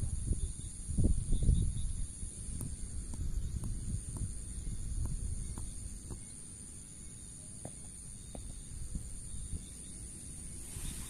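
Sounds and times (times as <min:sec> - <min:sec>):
high-pitched insect buzz: 0:00.0 - 0:11.0
low wind rumble: 0:00.0 - 0:11.0
faint ticks and taps: 0:02.5 - 0:04.4, 0:05.0 - 0:06.3.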